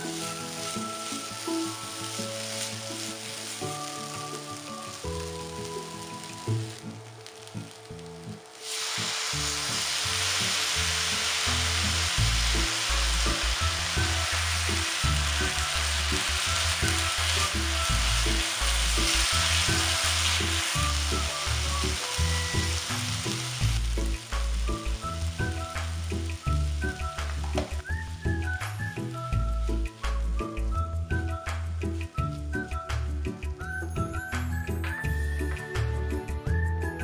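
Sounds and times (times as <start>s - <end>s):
chopsticks stirring vegetables: 0.0s - 7.8s, 8.6s - 25.3s
vegetables sizzling in a frying pan: 0.0s - 34.4s.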